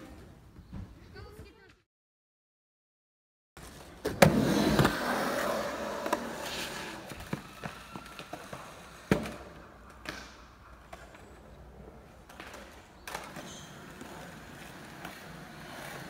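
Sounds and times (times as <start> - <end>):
skateboard wheels rolling on concrete: 3.6 - 16.0
skateboards knocking on concrete: 6.0 - 11.3.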